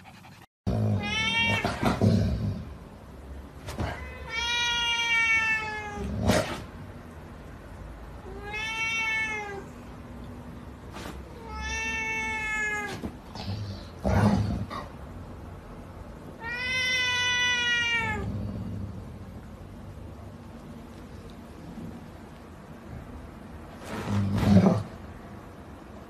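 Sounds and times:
cat meowing: 1.0 - 2.0, 3.8 - 6.1, 8.2 - 9.8, 11.4 - 13.1, 16.4 - 18.3.

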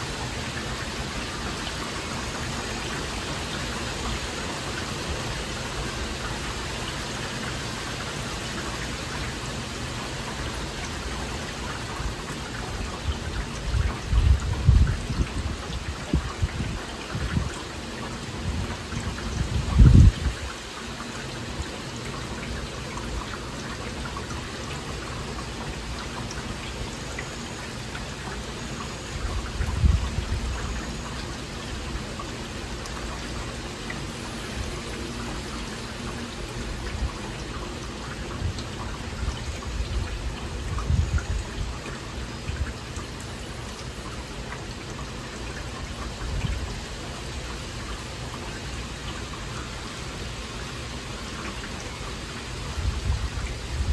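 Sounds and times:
heavy rain falling: 0.0 - 53.9.

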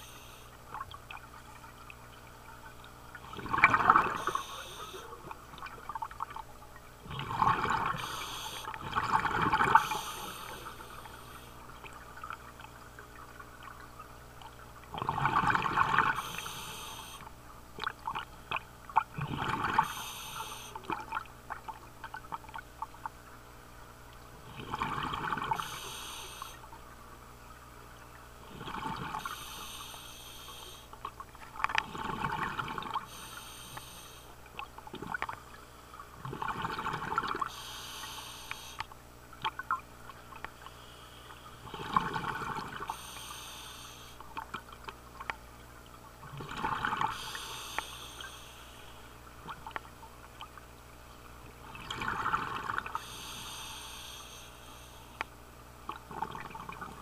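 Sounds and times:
bubbling exhale underwater: 3.2 - 6.0, 7.0 - 11.0, 14.9 - 17.2, 17.8 - 21.3, 24.4 - 26.3, 28.4 - 29.8, 31.7 - 33.3, 36.2 - 38.6, 41.6 - 43.2, 46.2 - 48.0, 51.6 - 54.0, 55.9 - 57.0
rushing inhale through regulator: 4.0 - 5.1, 7.9 - 8.7, 9.7 - 11.5, 16.1 - 17.2, 19.8 - 20.8, 25.6 - 26.6, 29.2 - 30.9, 33.0 - 34.3, 37.5 - 38.8, 42.8 - 44.2, 47.1 - 49.0, 53.0 - 55.2.

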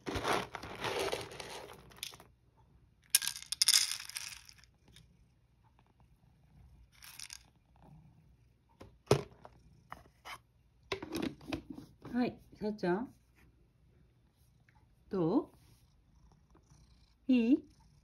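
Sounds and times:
cat food rustling and rattling: 0.0 - 2.4, 3.0 - 5.0, 6.8 - 7.8.

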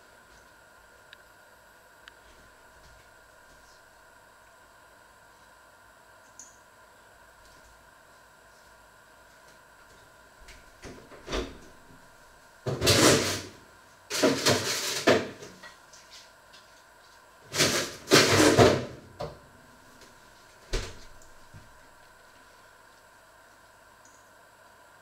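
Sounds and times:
kitchen clatter: 14.1 - 15.6.

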